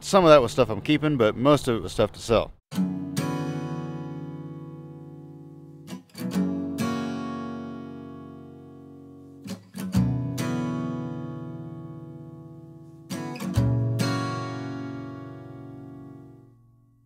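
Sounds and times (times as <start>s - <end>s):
acoustic guitar strumming: 2.7s - 17.0s.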